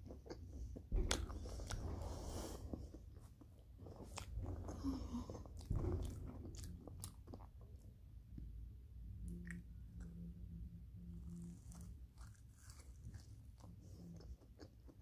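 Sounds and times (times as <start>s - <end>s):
chewing: 0.0s - 7.9s, 11.2s - 15.0s.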